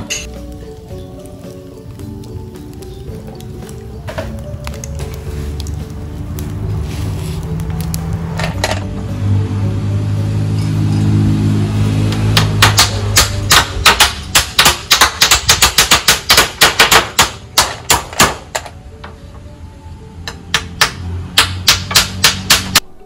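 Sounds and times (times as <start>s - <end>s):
hammers nailing bamboo slats: 12.1s - 18.8s, 20.3s - 22.8s.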